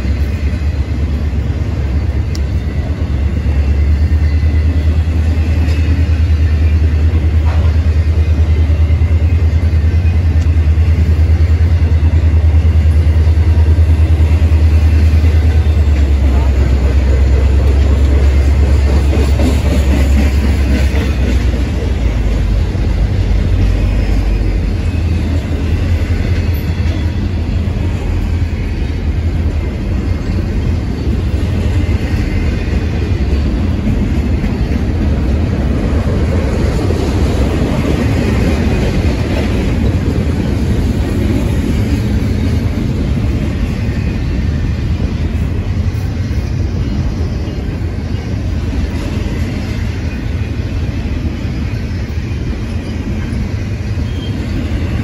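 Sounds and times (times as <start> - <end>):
freight train wheels rumbling on rail: 0.0 - 55.0.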